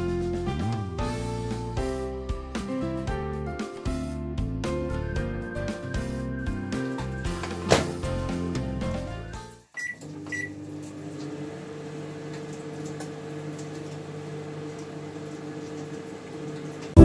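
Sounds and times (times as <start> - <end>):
microwave keypad beeps: 9.8 - 10.6
microwave oven humming: 9.8 - 17.0.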